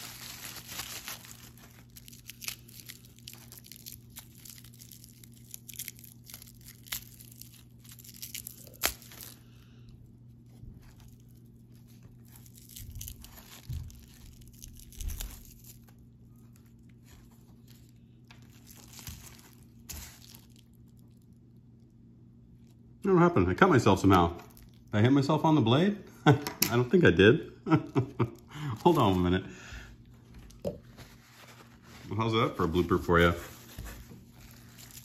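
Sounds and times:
plastic wrapping crinkling: 0:00.0 - 0:09.6, 0:10.3 - 0:21.6, 0:24.2 - 0:24.9, 0:27.7 - 0:29.4, 0:30.0 - 0:35.0.

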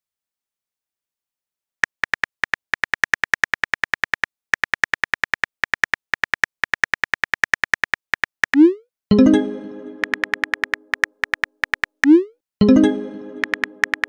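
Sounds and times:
phone keyboard tap clicks: 0:01.8 - 0:08.6, 0:10.0 - 0:12.2, 0:13.4 - 0:14.0.

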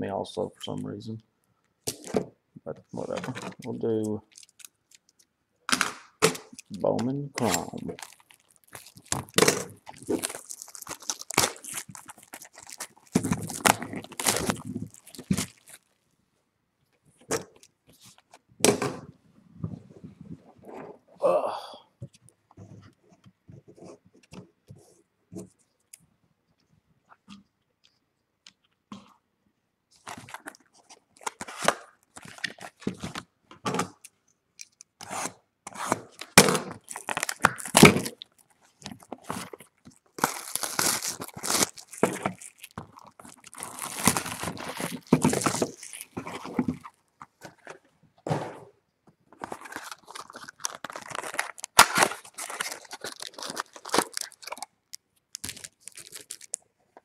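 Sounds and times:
packaging tearing and crackling: 0:03.2 - 0:05.0, 0:07.4 - 0:15.9, 0:31.2 - 0:33.0, 0:36.1 - 0:46.9, 0:49.4 - 0:54.7, 0:55.3 - 0:56.6.

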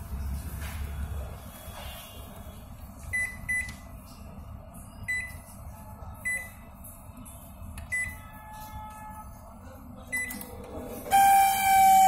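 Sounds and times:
microwave oven humming: 0:10.1 - 0:12.0.

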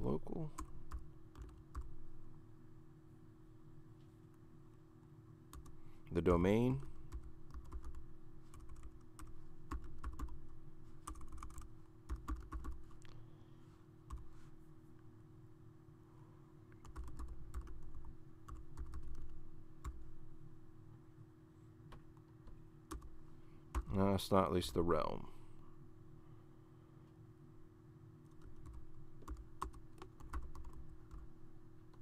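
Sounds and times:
steady low hum: 0:00.0 - 0:32.0
computer keyboard typing: 0:00.3 - 0:02.0, 0:05.5 - 0:05.8, 0:06.7 - 0:13.0, 0:16.8 - 0:20.0, 0:22.9 - 0:24.0, 0:28.3 - 0:31.3.

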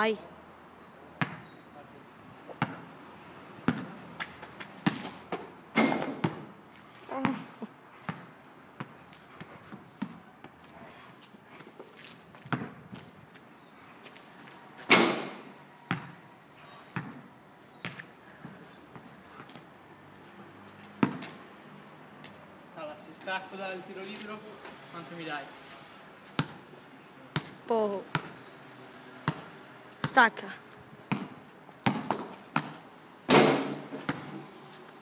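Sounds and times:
basketball bouncing on asphalt: 0:01.2 - 0:01.6, 0:02.5 - 0:02.9, 0:03.6 - 0:10.7, 0:12.0 - 0:13.4, 0:14.1 - 0:21.4, 0:26.3 - 0:26.6, 0:27.3 - 0:28.5, 0:29.2 - 0:34.4.

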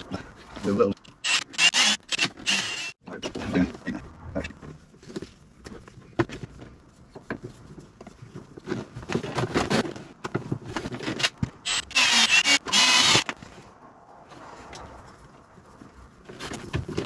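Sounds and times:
cordless drill whining: 0:01.2 - 0:03.0, 0:11.6 - 0:13.3.

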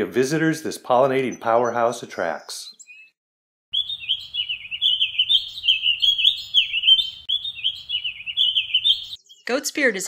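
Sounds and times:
songbird warbling: 0:02.2 - 0:10.0.

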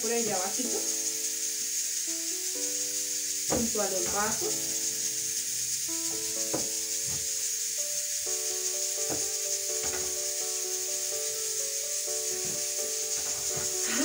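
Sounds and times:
slow background music: 0:00.0 - 0:14.0
steady high hiss: 0:00.0 - 0:14.0
soft knocks: 0:06.1 - 0:07.2, 0:09.1 - 0:10.2.

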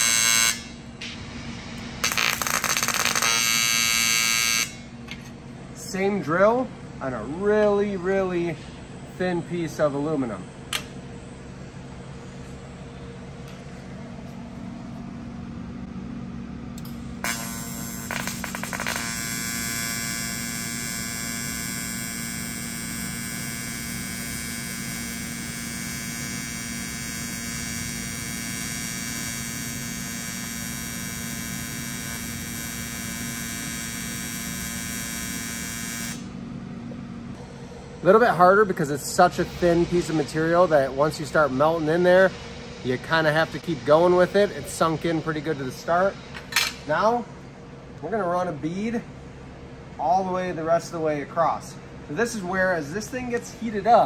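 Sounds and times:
welding arc buzzing: 0:00.0 - 0:01.2, 0:01.8 - 0:05.2, 0:16.8 - 0:36.4
low hum: 0:00.0 - 0:03.9, 0:04.6 - 0:20.0, 0:36.1 - 0:50.7
welding arc crackles: 0:02.0 - 0:04.8, 0:17.2 - 0:36.2.

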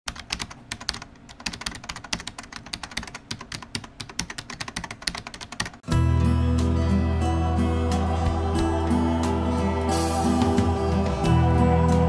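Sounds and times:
computer keyboard typing: 0:00.1 - 0:05.8.

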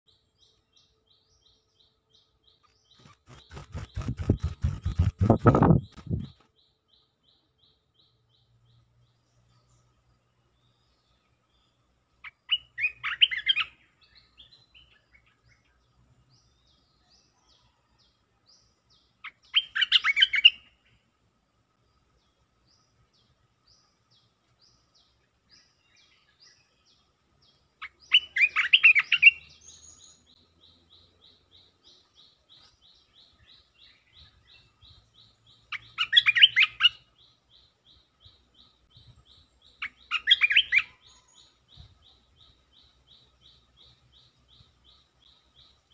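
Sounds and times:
faint fast high chirping: 0:02.6 - 0:06.5.

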